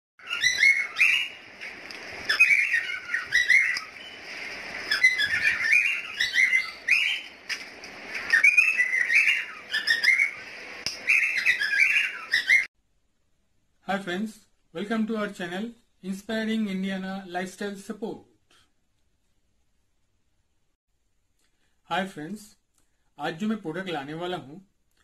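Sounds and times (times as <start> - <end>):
birds chirping and whistling: 0.2 - 12.7.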